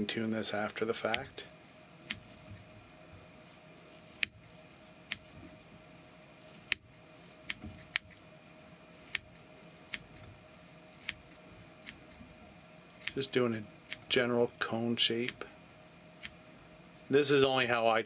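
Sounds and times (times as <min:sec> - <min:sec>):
scissors snipping hair: 0:01.1 - 0:01.3, 0:04.0 - 0:04.4, 0:06.6 - 0:06.8, 0:09.0 - 0:10.2, 0:11.0 - 0:12.1, 0:13.0 - 0:13.2.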